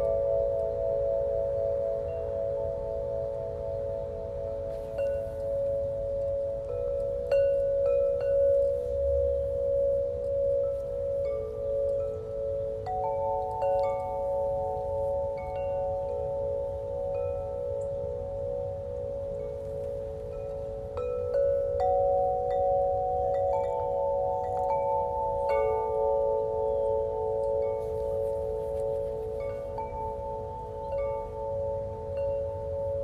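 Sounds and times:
soft ambient music: 21.8s - 33.0s.

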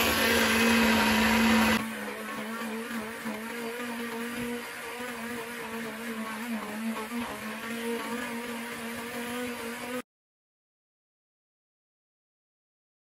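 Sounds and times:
hand blender motor humming: 0.0s - 10.0s.

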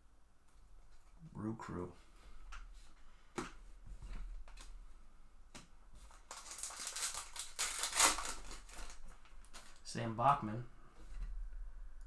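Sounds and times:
foil wrapper crinkling: 6.1s - 9.9s.

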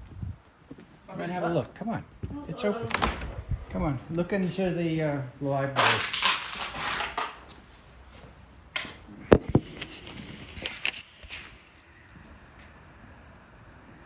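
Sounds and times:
door: 2.8s - 3.4s.

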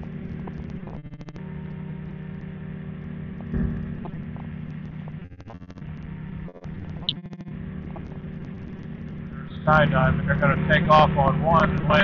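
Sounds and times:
ultralight engine and propeller droning: 0.0s - 12.0s
low bump: 3.0s - 12.0s.

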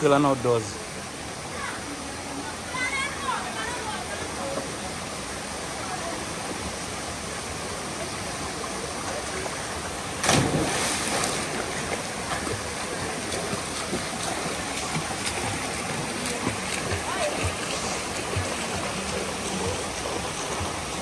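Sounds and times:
waterfall rushing: 0.0s - 21.0s
loud splash: 10.2s - 18.8s.

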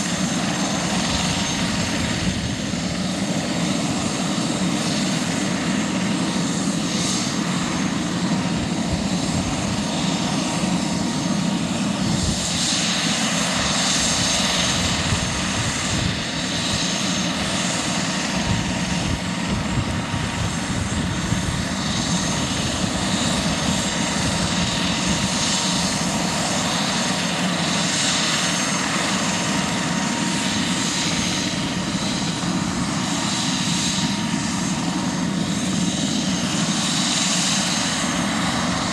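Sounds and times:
helicopter rotor rushing noise: 0.0s - 38.9s
helicopter turbine whine: 0.0s - 38.9s.

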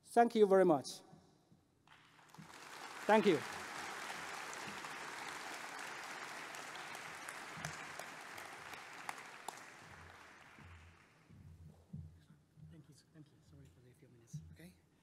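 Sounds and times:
audience applauding: 1.9s - 11.2s
sharp single claps: 1.9s - 11.2s.

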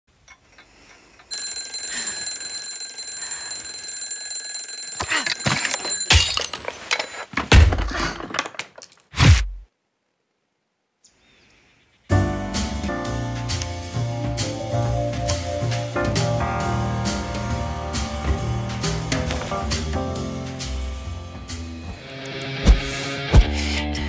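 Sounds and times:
alarm clock ringing: 1.3s - 6.4s
knocks and heavy thumps: 7.3s - 8.5s
music with drums: 12.1s - 23.9s.

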